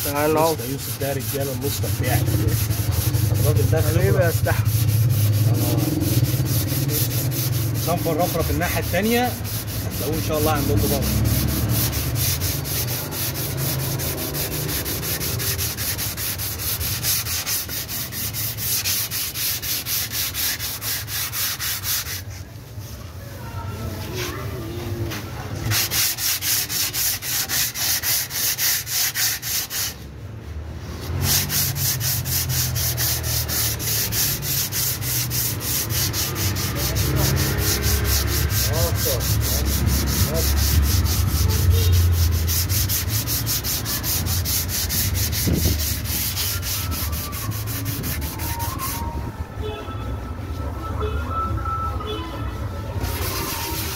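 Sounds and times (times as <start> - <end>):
sandpaper sanding by hand: 0.0 - 22.8, 25.1 - 30.1, 30.8 - 49.2, 53.0 - 53.9.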